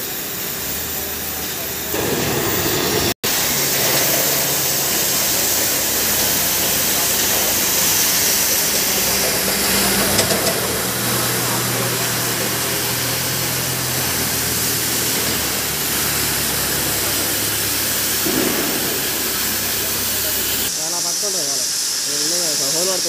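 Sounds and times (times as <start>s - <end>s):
cutting torches hissing: 0.0s - 23.0s.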